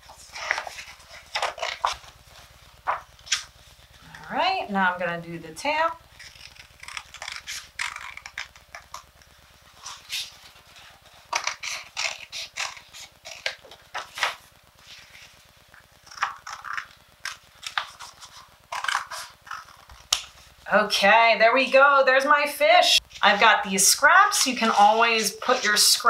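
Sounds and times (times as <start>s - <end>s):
paper rustling: 0.0s - 4.1s, 6.1s - 20.5s, 24.1s - 26.0s
scissors snipping paper: 6.2s - 9.0s, 11.3s - 14.4s, 16.1s - 20.3s.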